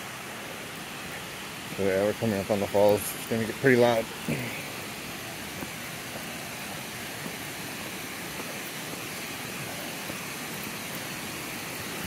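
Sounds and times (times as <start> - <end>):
waterfall rushing: 0.0 - 12.0
footsteps on dirt trail: 3.8 - 12.0.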